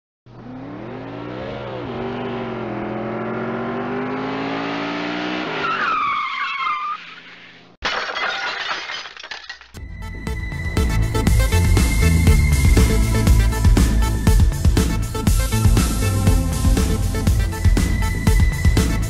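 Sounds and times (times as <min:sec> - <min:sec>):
car engine revving: 0:00.3 - 0:05.7
tyre screech: 0:05.5 - 0:07.7.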